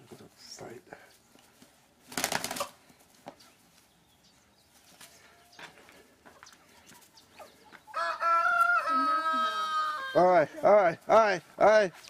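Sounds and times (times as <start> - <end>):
roosters wing-flapping: 2.0 - 3.8
faint chicken clucks: 3.2 - 10.6.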